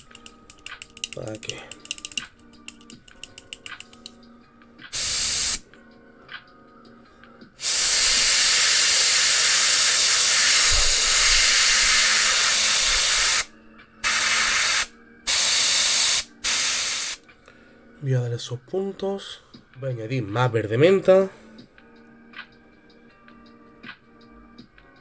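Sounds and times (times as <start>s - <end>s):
airbrush spraying air hiss: 4.9s - 5.6s, 7.6s - 17.2s.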